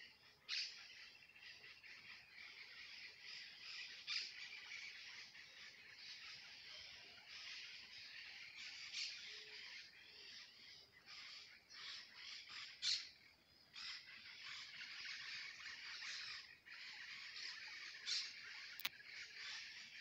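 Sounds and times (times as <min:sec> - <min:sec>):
birds chirping: 0:00.0 - 0:20.0
louder bird calls: 0:00.0 - 0:20.0.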